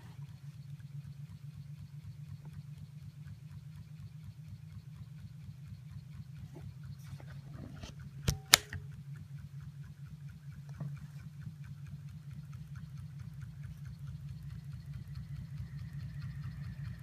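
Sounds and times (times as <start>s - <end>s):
hot-air engine pulsing: 0.0s - 17.0s
sharp clicks: 6.8s - 17.0s.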